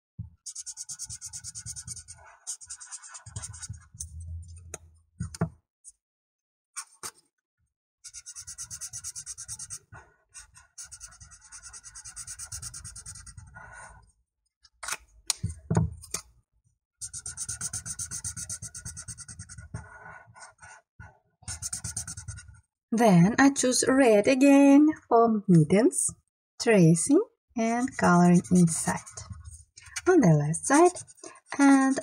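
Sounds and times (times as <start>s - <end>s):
marker scribbling on paper: 0.4s - 4.1s, 8.0s - 14.0s, 17.0s - 20.8s, 21.5s - 22.6s, 27.6s - 32.0s.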